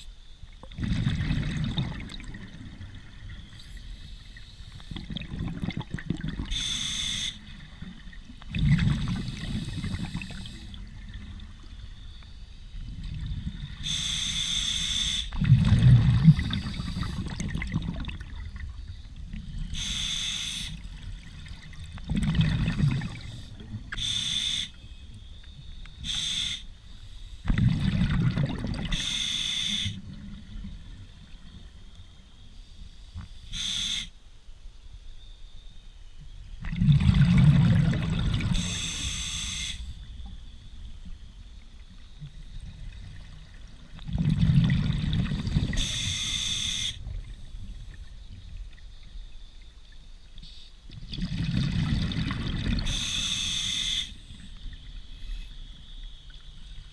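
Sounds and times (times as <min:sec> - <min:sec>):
rumbling exhale bubbles: 0:00.6 - 0:03.2, 0:04.9 - 0:06.5, 0:08.5 - 0:11.3, 0:15.4 - 0:18.7, 0:21.2 - 0:23.9, 0:27.5 - 0:29.1, 0:36.6 - 0:39.1, 0:42.6 - 0:46.1, 0:51.0 - 0:53.1
regulator inhale hiss: 0:03.5 - 0:05.1, 0:06.5 - 0:07.5, 0:09.0 - 0:10.9, 0:13.8 - 0:15.4, 0:16.2 - 0:17.4, 0:19.7 - 0:20.9, 0:23.0 - 0:24.9, 0:26.0 - 0:27.5, 0:28.9 - 0:30.0, 0:32.6 - 0:34.2, 0:38.5 - 0:40.1, 0:45.7 - 0:47.1, 0:50.4 - 0:50.9, 0:52.8 - 0:54.5.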